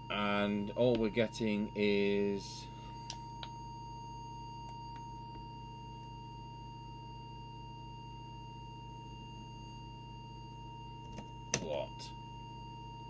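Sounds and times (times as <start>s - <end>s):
steady test tone: 0.0s - 6.0s, 9.0s - 13.0s
low buzzing hum: 0.0s - 13.0s.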